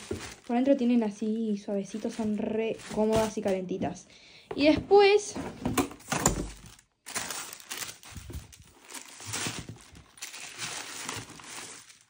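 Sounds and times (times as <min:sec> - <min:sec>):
cardboard box rustling: 0:00.0 - 0:00.5, 0:06.4 - 0:12.0
tissue paper crinkling: 0:00.0 - 0:03.6, 0:06.6 - 0:12.0.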